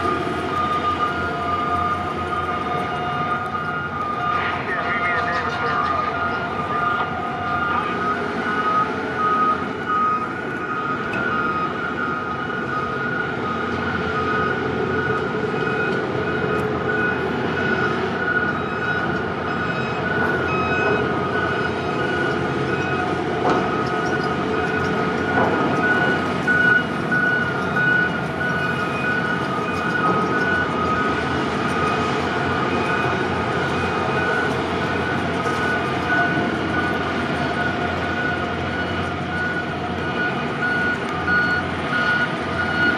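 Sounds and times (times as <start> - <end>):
vehicle engines running: 0.0 - 42.9
high warning beeps: 2.6 - 23.1.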